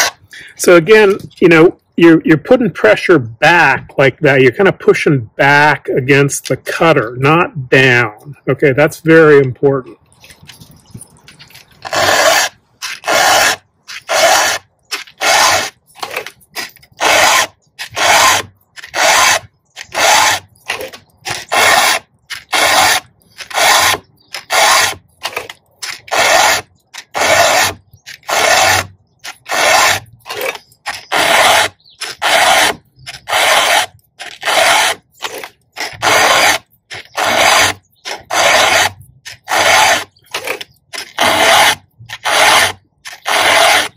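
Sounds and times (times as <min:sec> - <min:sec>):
file rasping on saw chain: 0:11.3 - 0:43.9.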